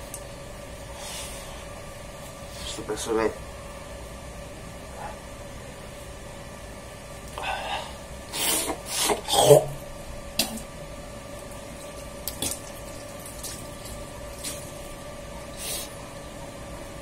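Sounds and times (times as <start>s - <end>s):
faint steady hum: 0.0s - 17.0s
rubbing and water sounds: 11.3s - 16.0s.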